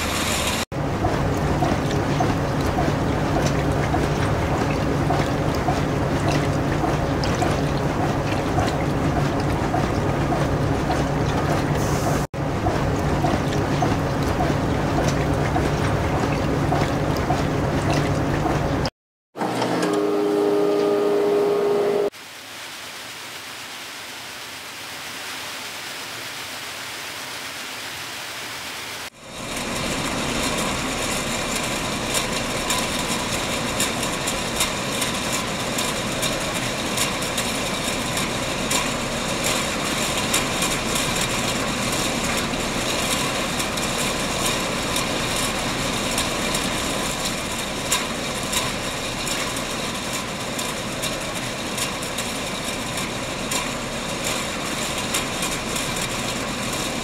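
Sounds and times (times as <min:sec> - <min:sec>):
canning machinery humming: 0:19.4 - 0:22.1.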